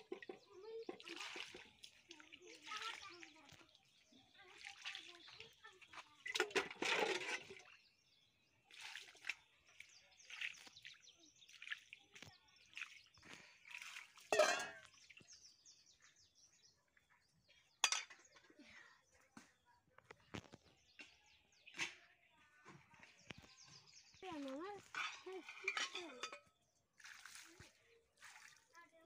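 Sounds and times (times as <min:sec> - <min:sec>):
water splashing from a bowl: 0:00.0 - 0:15.4, 0:24.2 - 0:29.0.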